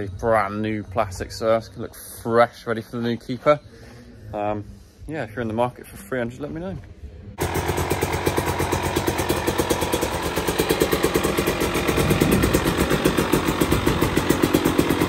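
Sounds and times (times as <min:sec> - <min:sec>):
two-stroke motorcycle engine idling: 0:07.4 - 0:15.0.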